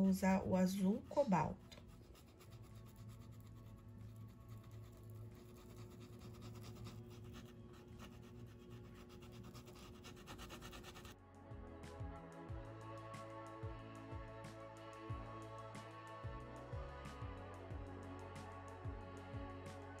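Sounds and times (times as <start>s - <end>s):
low steady hum: 0.0s - 11.2s
paintbrush scratching on fabric: 0.7s - 11.2s.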